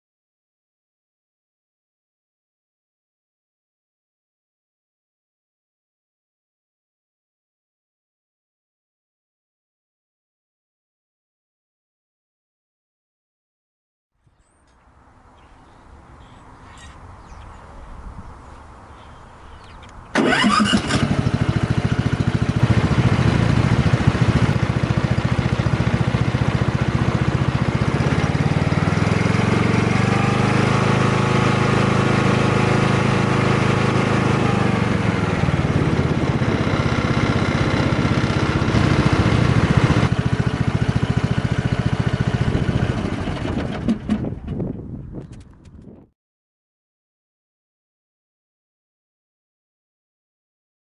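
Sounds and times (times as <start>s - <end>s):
riding mower engine running: 19.8s - 45.8s.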